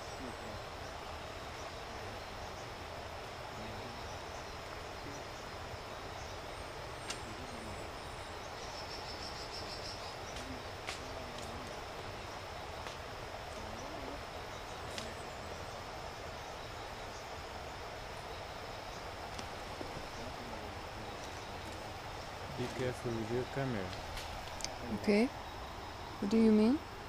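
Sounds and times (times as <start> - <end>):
insect buzz: 0.0 - 27.0
twigs snapping: 7.0 - 7.3, 10.3 - 11.8, 12.8 - 13.0, 23.9 - 24.8.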